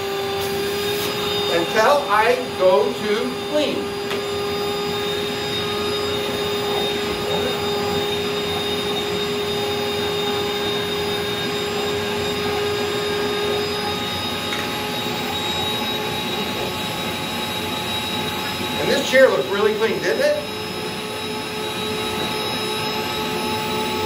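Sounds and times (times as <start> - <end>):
vacuum cleaner running: 0.0 - 24.0.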